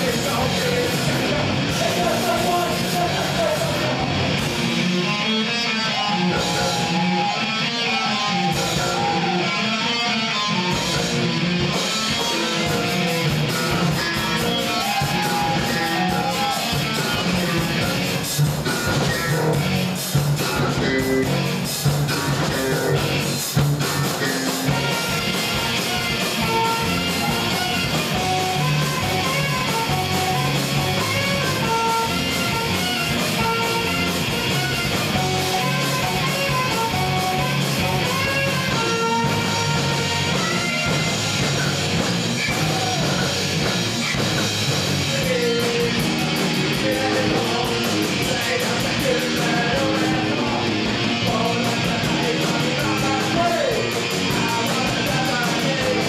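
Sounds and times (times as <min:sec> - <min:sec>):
electric guitar: 0:00.0 - 0:56.0
rock band playing live: 0:00.0 - 0:56.0
saxophone holding notes: 0:24.7 - 0:41.4.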